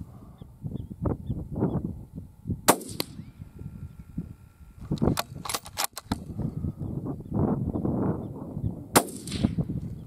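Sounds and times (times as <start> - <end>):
rifle shot: 2.7 - 3.3, 8.9 - 9.7
sharp clicks: 4.8 - 6.3.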